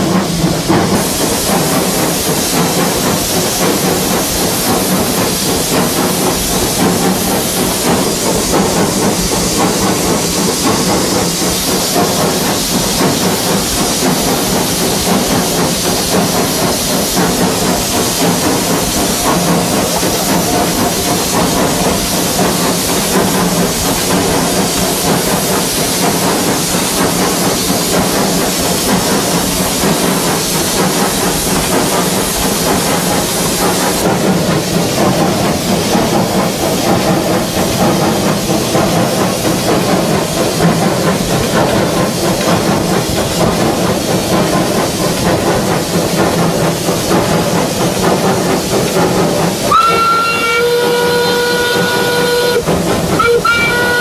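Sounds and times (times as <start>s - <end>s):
locomotive engine and wheels running: 0.0s - 54.0s
steam hissing: 0.0s - 54.0s.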